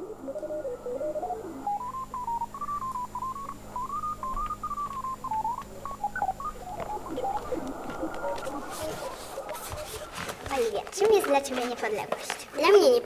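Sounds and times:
high pure tone playing a tune: 0.0s - 10.7s
steady low hum: 0.0s - 12.6s.

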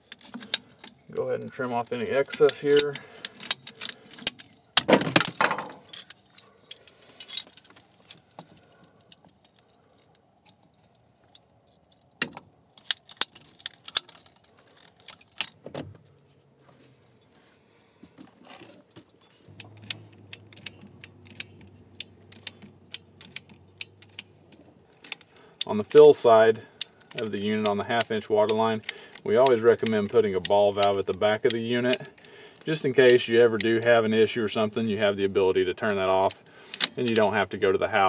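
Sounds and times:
low steady hum: 0.0s - 38.0s
metallic clicks of hand tools: 19.1s - 26.0s, 36.2s - 37.3s.

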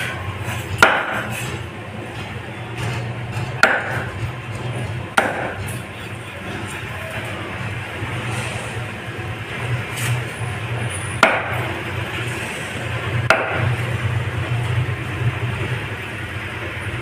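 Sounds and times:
cleaver chopping onto cutting block: 0.8s - 1.3s, 3.6s - 4.1s, 5.2s - 5.6s, 11.2s - 11.7s, 13.3s - 13.7s.

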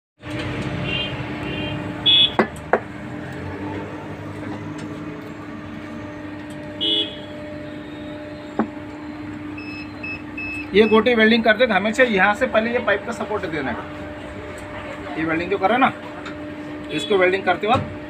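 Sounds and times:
vehicle horns honking: 0.7s - 2.5s, 6.7s - 8.6s, 16.8s - 17.3s
steady background hum: 0.8s - 18.0s.

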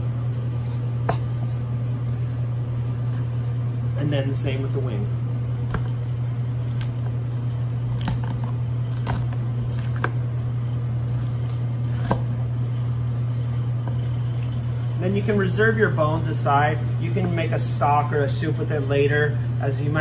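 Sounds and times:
kitchen machinery humming: 0.0s - 20.0s
knife cutting through duck: 0.6s - 1.7s.

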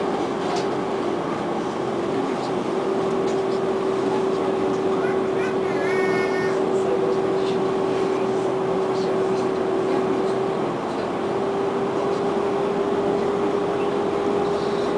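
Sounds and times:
constant humming tone: 0.0s - 14.9s
tram running noise: 0.0s - 14.9s.

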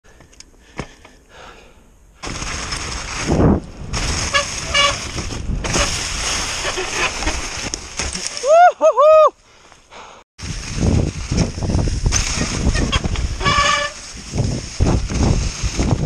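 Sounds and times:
bike rattling over rough ground: 2.2s - 8.6s, 10.4s - 16.0s
wind rush on microphone: 3.0s - 6.7s, 10.4s - 16.0s.

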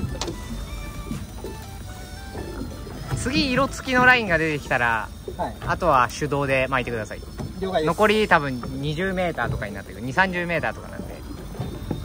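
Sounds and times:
background music with held notes: 0.0s - 4.8s.

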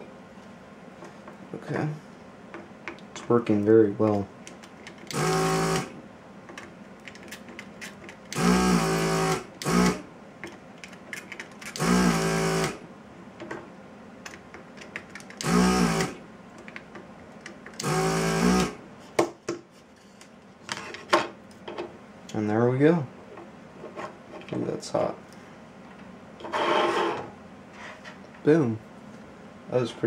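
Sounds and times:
vacuum pump motor hum: 5.1s - 6.0s, 8.3s - 10.1s, 11.8s - 12.9s, 15.4s - 16.2s, 17.8s - 18.8s.

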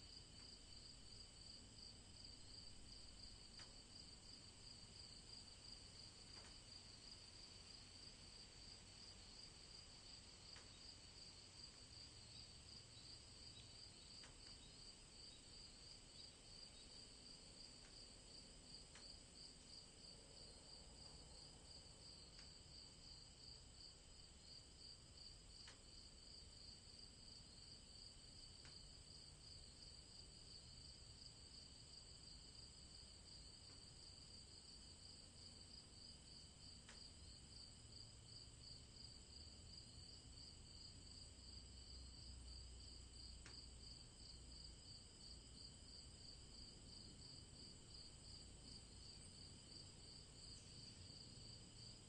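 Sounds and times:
crickets chirping: 0.0s - 52.0s
soft ticks: 3.5s - 3.8s, 6.3s - 6.6s, 10.5s - 10.8s, 14.2s - 14.6s, 22.3s - 22.6s, 25.6s - 25.9s, 28.6s - 28.8s, 36.8s - 37.1s, 43.4s - 43.7s.

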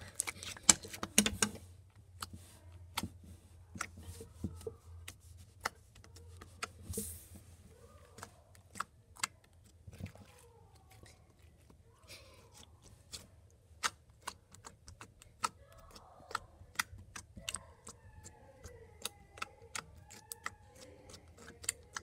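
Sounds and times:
slime clicking and popping: 13.8s - 22.0s.

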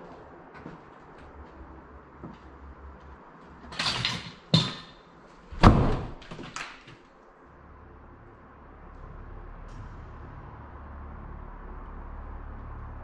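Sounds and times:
wooden door rattling: 3.6s - 7.0s.

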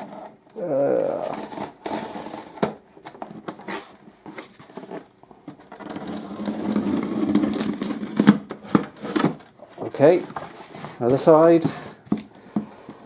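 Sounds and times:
scissors scraping through tape: 0.0s - 2.7s.

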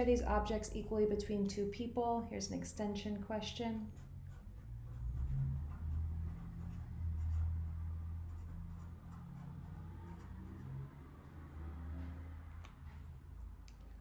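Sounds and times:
marker scratching on paper: 3.0s - 10.9s.

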